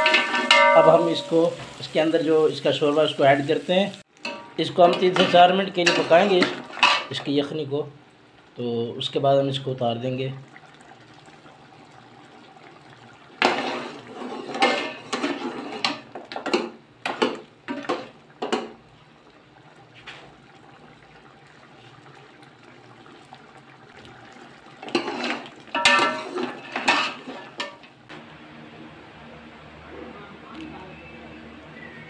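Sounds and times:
metal ladle clanking in pot: 0:00.0 - 0:01.3, 0:04.2 - 0:07.2, 0:13.4 - 0:18.8, 0:24.8 - 0:27.9
liquid sloshing: 0:10.3 - 0:28.0.

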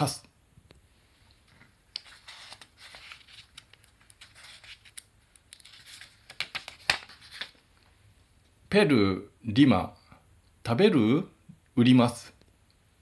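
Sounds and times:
paper pages rustling: 0:01.3 - 0:07.6.

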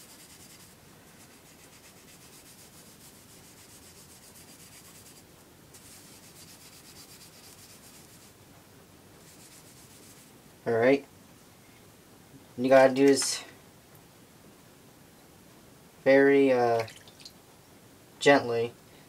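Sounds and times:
hands rubbing soapy metal: 0:00.0 - 0:08.4, 0:09.2 - 0:10.3.

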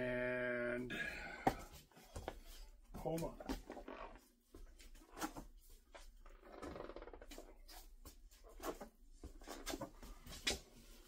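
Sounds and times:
faint footsteps: 0:01.4 - 0:06.1.

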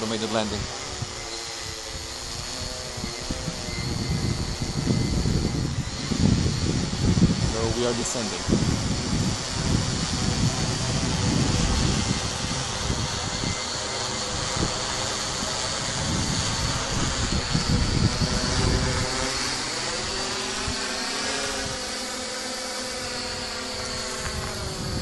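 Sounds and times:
quadcopter propellers buzzing: 0:00.0 - 0:25.0
gusty low rumble: 0:02.8 - 0:13.6, 0:14.2 - 0:19.2.

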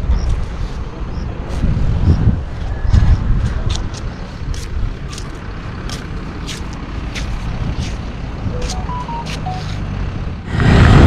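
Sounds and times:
distant road traffic: 0:00.0 - 0:11.0
wind: 0:00.0 - 0:11.0
whistle-like notes: 0:08.6 - 0:09.7.

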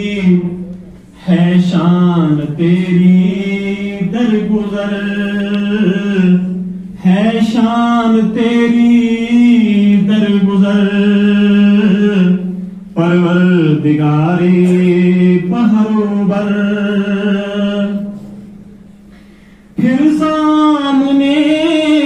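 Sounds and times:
man chanting a hymn: 0:00.0 - 0:18.4, 0:19.8 - 0:22.0.

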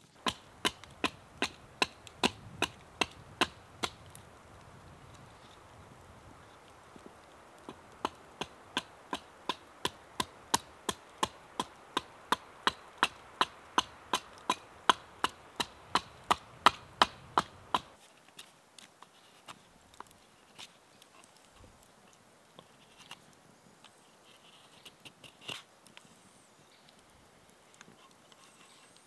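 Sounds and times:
chopping wood knocks: 0:11.2 - 0:17.9.

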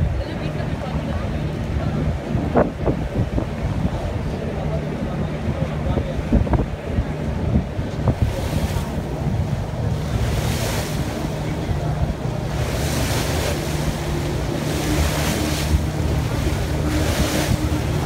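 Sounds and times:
boat engine rumble: 0:00.0 - 0:18.0
wind buffeting microphone: 0:00.0 - 0:18.0
water rushing past: 0:07.5 - 0:18.0.

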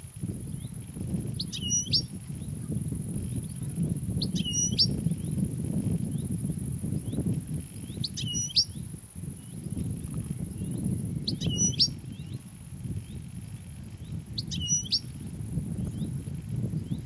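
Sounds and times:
faint bird chirps: 0:01.4 - 0:02.6, 0:03.3 - 0:05.4, 0:07.8 - 0:08.8, 0:10.6 - 0:12.4, 0:14.0 - 0:15.1.

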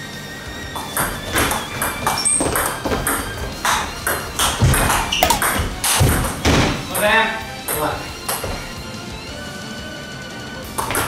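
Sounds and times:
table tennis ball clicking: 0:05.2 - 0:05.6.

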